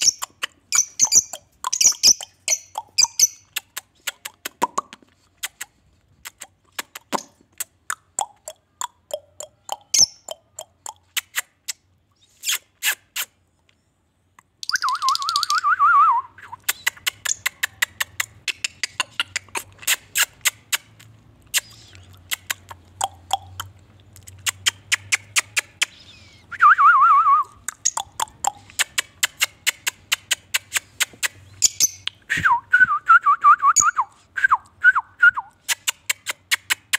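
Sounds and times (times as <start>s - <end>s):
lovebirds chirping: 0.0s - 4.2s, 8.2s - 11.3s, 14.6s - 15.7s, 21.5s - 26.5s, 27.5s - 32.3s.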